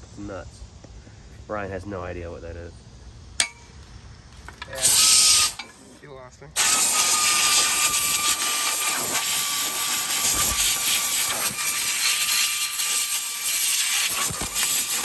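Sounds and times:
compressed air blow gun hissing: 0:04.8 - 0:15.0
faint steady whistle: 0:06.6 - 0:08.7.

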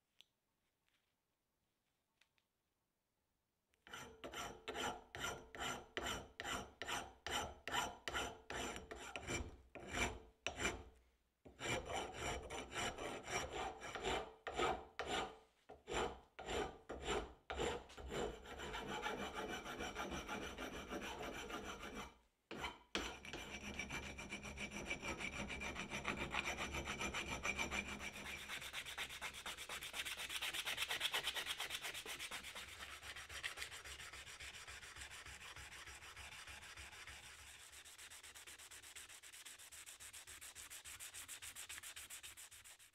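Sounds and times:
file rasping on steel: 0:03.8 - 0:10.9, 0:11.5 - 0:42.9
sandpaper rubbing on steel: 0:24.2 - 0:42.9.

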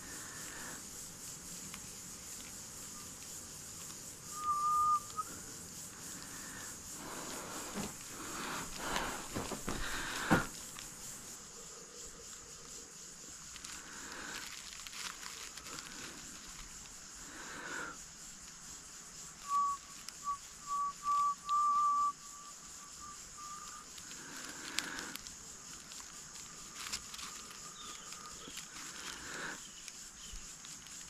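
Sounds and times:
high insect drone: 0:00.0 - 0:31.0
short whistled notes: 0:04.3 - 0:05.4, 0:19.4 - 0:23.6.

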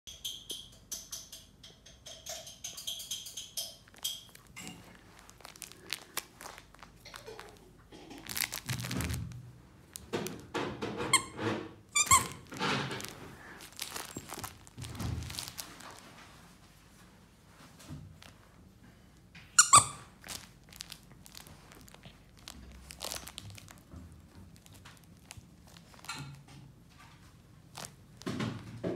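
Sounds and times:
toy rustling: 0:03.3 - 0:09.2, 0:12.0 - 0:16.5, 0:19.6 - 0:26.3
squeaky toy squeaks: 0:11.1 - 0:13.1, 0:19.6 - 0:20.5.

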